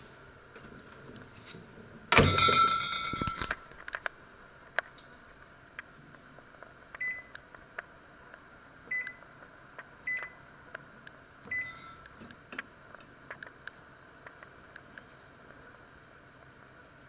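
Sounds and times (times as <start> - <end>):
microwave button beeps: 7.0 - 7.3, 8.9 - 9.2, 10.1 - 10.4, 11.5 - 12.0.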